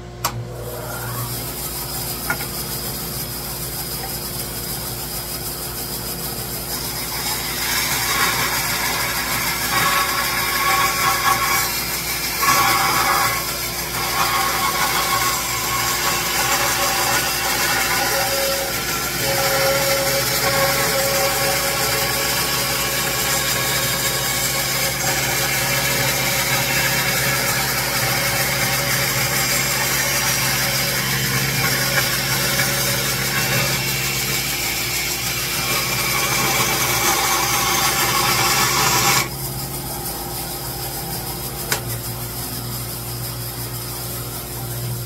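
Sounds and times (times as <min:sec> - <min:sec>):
dust collector running: 0:00.0 - 0:45.0
saw motor running: 0:00.0 - 0:45.0
bandsaw cutting wood: 0:06.3 - 0:39.4.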